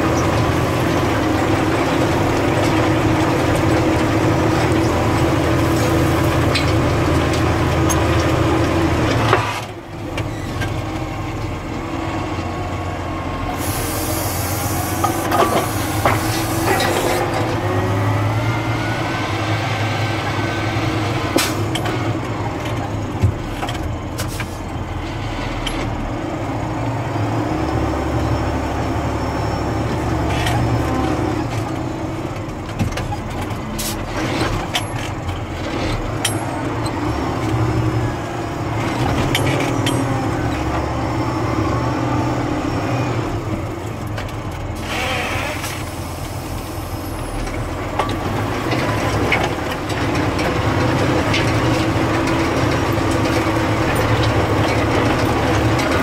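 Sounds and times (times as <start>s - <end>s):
tractor diesel engine: 0.0s - 56.0s
hydraulic hiss: 13.6s - 17.0s.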